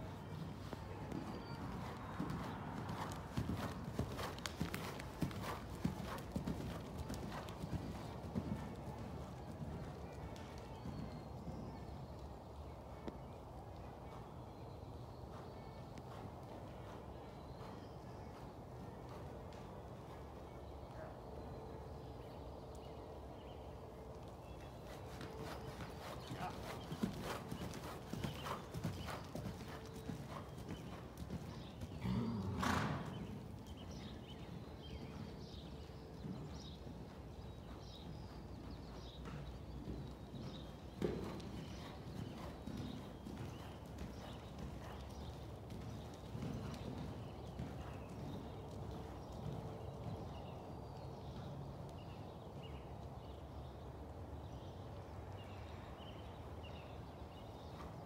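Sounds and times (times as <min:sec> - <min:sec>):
hoofbeats on soft dirt: 0:00.0 - 0:21.5, 0:22.2 - 0:58.0
horse snorting: 0:32.0 - 0:33.0.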